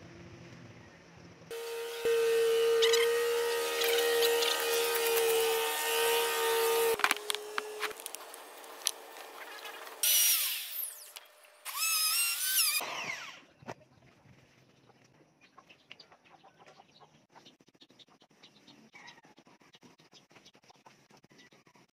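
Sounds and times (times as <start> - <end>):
power tool cutting wood: 1.5 - 13.5
power tool motor whine: 1.5 - 13.5.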